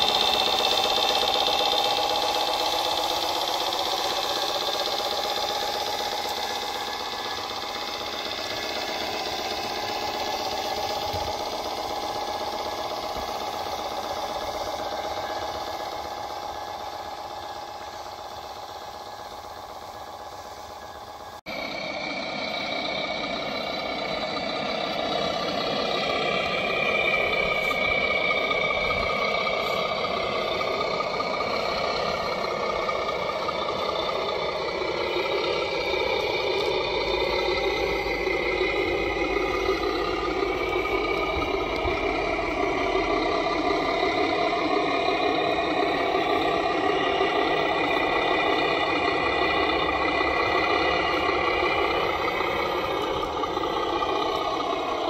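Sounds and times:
toy truck engine running: 0.0 - 55.0.

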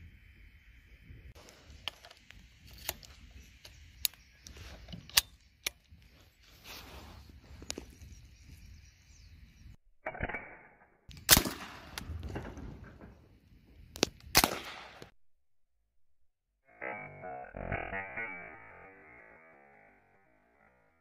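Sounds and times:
rifle shots: 11.2 - 12.1, 14.3 - 15.1.

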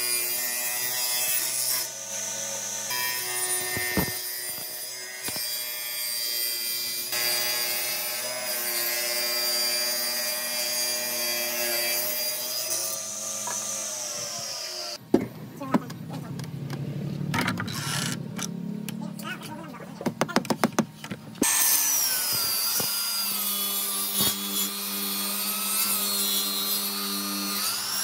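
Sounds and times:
planer shaving wood: 0.0 - 15.0, 21.4 - 28.0
table saw cutting a board: 0.0 - 15.0, 17.4 - 18.2, 21.4 - 28.0.

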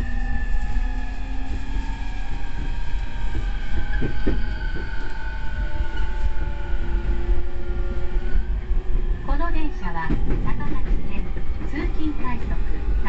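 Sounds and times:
wheels rumbling on rail: 0.0 - 13.0.

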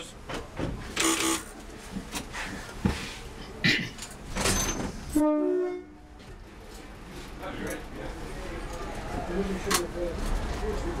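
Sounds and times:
two-tone train horn blast: 5.1 - 6.2.

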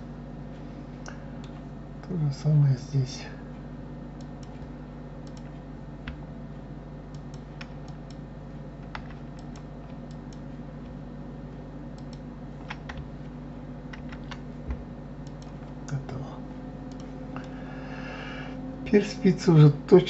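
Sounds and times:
low electrical hum: 0.0 - 20.0
keyboard keys clicking: 8.8 - 11.0, 12.0 - 13.1, 13.9 - 15.7.

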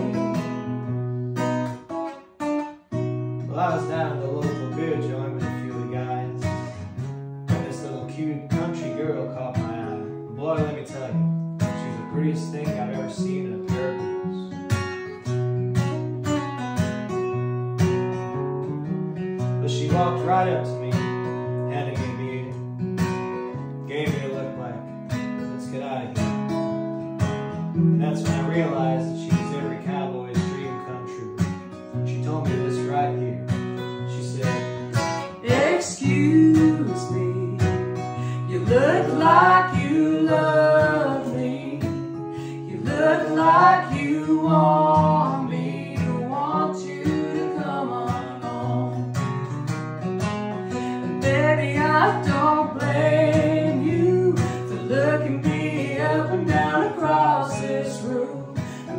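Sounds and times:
acoustic guitars strumming: 0.0 - 58.9
woman singing: 35.2 - 49.0, 51.1 - 58.9.

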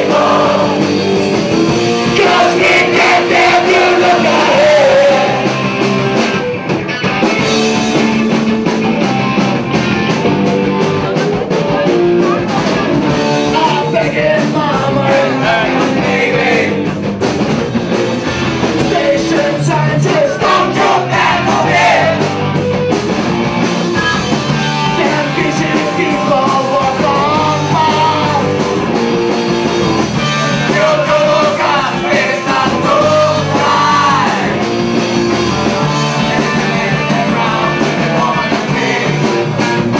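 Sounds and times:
people singing: 0.0 - 5.8, 11.7 - 17.0, 18.7 - 22.4, 24.9 - 28.7, 30.2 - 39.9
live rock band playing: 0.0 - 39.9.

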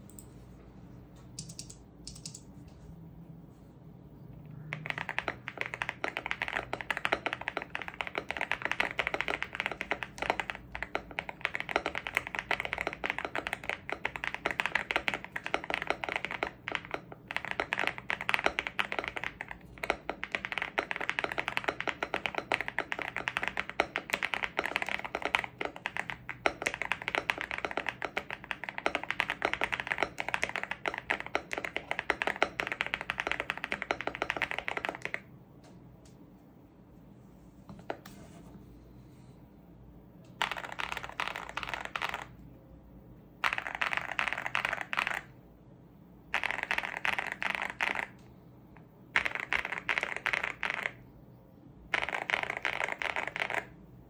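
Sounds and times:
mechanical keyboard typing: 1.3 - 2.5, 4.5 - 35.3, 40.3 - 42.4, 43.4 - 45.4, 46.3 - 48.2, 49.1 - 51.0, 51.9 - 53.8.

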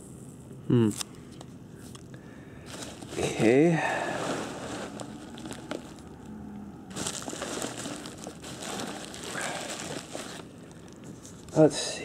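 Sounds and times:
packing peanuts and bubble wrap rustling: 2.6 - 11.9.

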